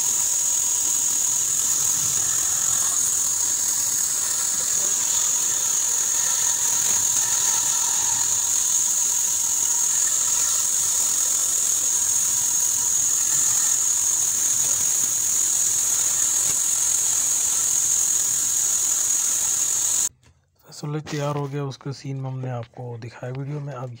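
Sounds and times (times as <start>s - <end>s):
band saw cutting wood: 0.0s - 20.1s.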